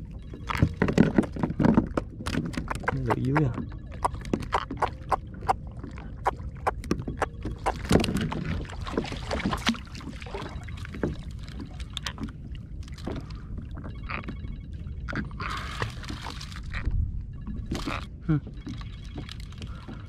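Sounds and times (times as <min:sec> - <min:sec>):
water lapping at kayak hull: 0:00.0 - 0:20.0
knocks and taps on hull: 0:00.4 - 0:09.9.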